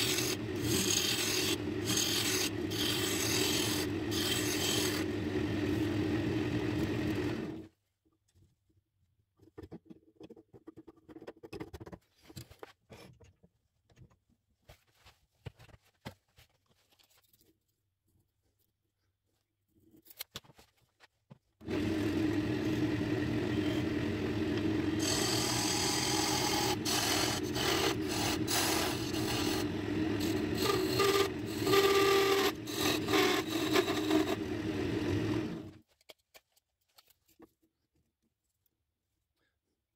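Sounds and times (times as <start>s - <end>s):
turning tool scraping wood: 0.0s - 7.6s, 23.6s - 35.8s
wood lathe humming: 0.0s - 7.6s, 21.6s - 35.7s.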